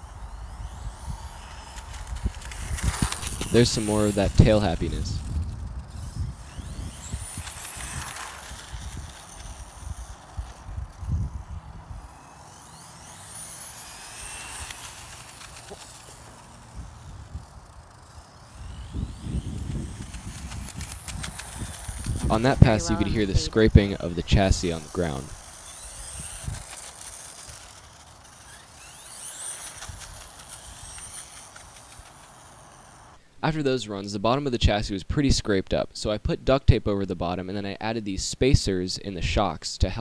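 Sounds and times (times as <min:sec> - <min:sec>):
wind rumbling on microphone: 0:00.0 - 0:15.7, 0:16.6 - 0:26.8
tyre noise on asphalt: 0:00.0 - 0:22.8, 0:23.5 - 0:33.2
electric motor whining: 0:00.0 - 0:33.2.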